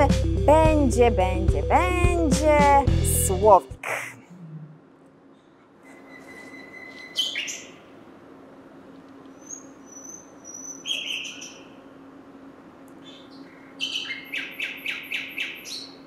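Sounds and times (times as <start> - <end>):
faint low hum: 0.0 - 16.0
nightingale singing: 6.0 - 7.9, 9.3 - 11.9, 13.0 - 16.0.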